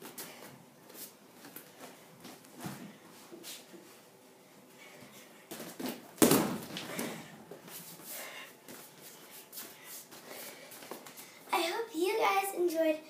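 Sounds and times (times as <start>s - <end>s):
heavy thump on floor mat: 6.2s - 7.1s.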